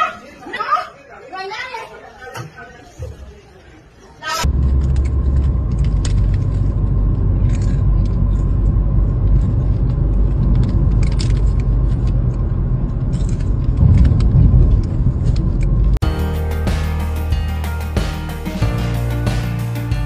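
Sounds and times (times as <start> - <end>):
car road rumble: 4.4 - 16.0.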